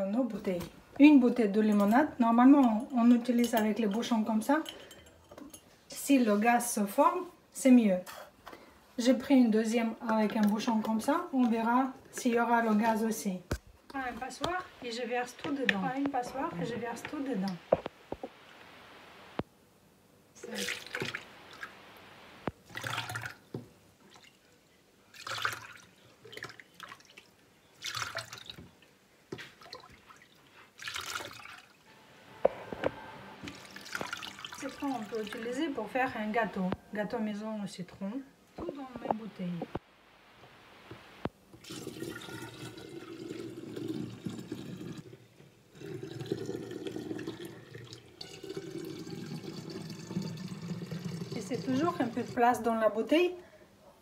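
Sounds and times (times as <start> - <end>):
liquid splashing into a jug: 20.5 - 21.7, 22.6 - 24.4, 25.1 - 28.7, 29.4 - 31.8, 33.4 - 35.6, 41.6 - 45.0, 45.8 - 52.4.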